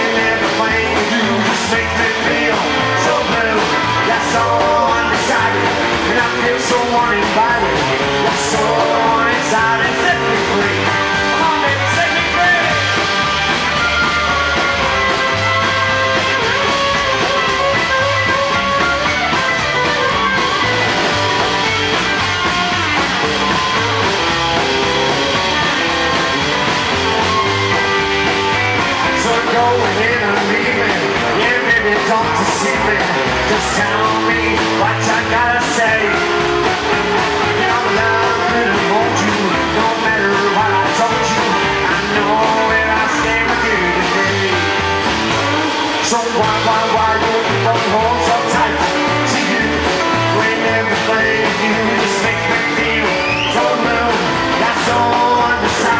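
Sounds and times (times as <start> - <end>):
man singing into microphone: 0.0 - 13.1, 29.0 - 44.9, 45.9 - 55.9
rockabilly band playing: 0.0 - 55.9
slapped double bass: 0.0 - 55.9.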